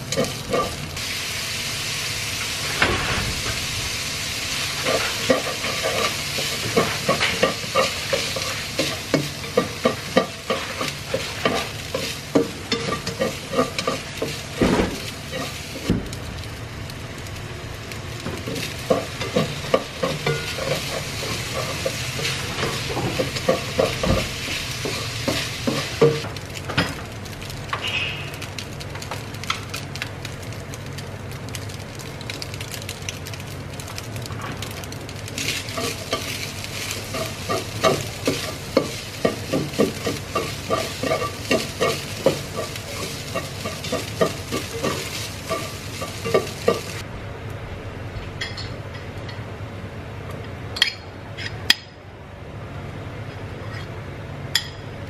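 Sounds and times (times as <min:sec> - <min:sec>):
fried rice sizzling in a wok: 0:00.0 - 0:47.1
spatula scraping a pan: 0:18.9 - 0:26.2, 0:35.5 - 0:47.0.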